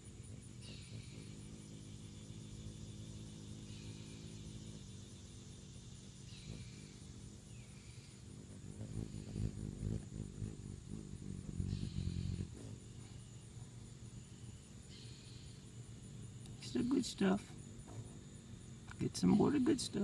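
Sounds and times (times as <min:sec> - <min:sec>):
faint steady high whine: 0:00.0 - 0:20.0
hummingbird wings humming: 0:00.0 - 0:20.0.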